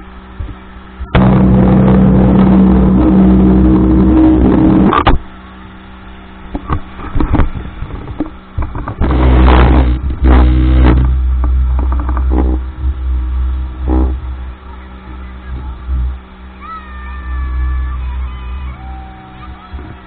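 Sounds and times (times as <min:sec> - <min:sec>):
speedboat engine drone: 0:00.0 - 0:20.0
wind on microphone: 0:00.4 - 0:05.2, 0:06.6 - 0:14.5.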